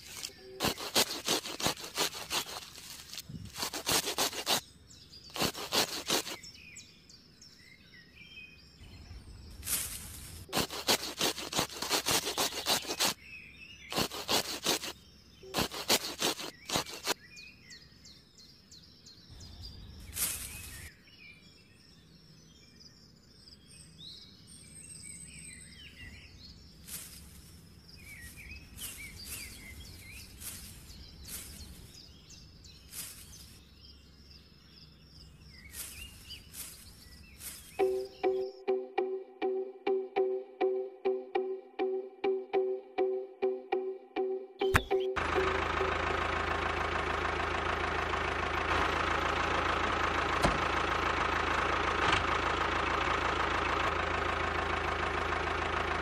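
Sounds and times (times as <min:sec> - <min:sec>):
scissors snipping seedlings: 0:00.0 - 0:04.6, 0:05.3 - 0:06.4, 0:09.7 - 0:13.2, 0:13.9 - 0:17.2, 0:44.6 - 0:45.1
birds chirping: 0:00.0 - 0:56.0.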